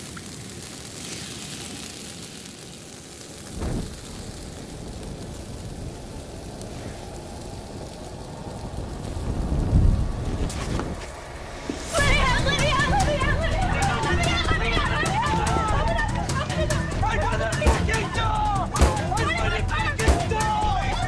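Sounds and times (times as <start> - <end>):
rain-like hiss of blood spray: 0.0 - 21.0
low thud: 3.6 - 4.0.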